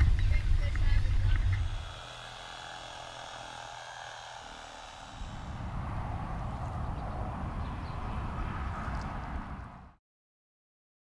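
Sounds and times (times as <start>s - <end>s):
electric knife motor buzzing: 1.1s - 6.9s
low rumble: 5.0s - 10.0s.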